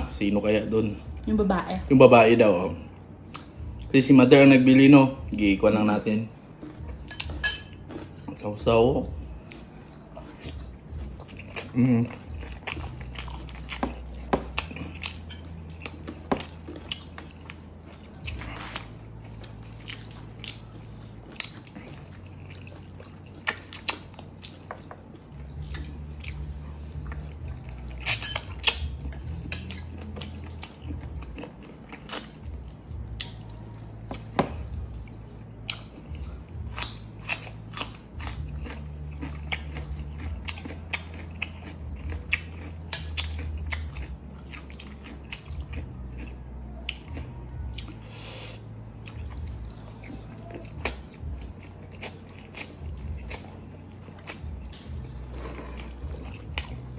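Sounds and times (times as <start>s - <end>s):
chewing with wet mouth clicks: 3.2s - 3.9s, 6.4s - 8.6s, 9.4s - 56.9s.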